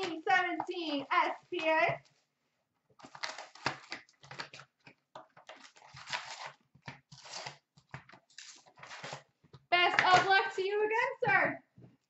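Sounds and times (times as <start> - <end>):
paper and cardboard rustling: 0.0 - 10.4
card pack wrapper tearing: 3.0 - 4.8, 5.5 - 7.6.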